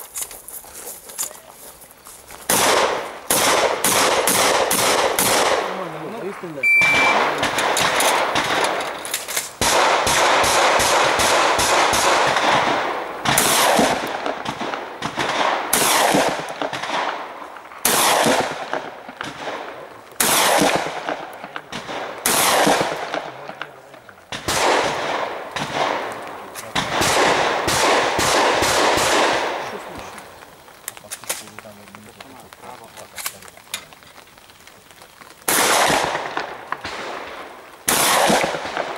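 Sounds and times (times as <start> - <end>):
shotgun firing: 2.5 - 6.0, 6.8 - 23.7, 24.3 - 30.0, 35.5 - 38.9.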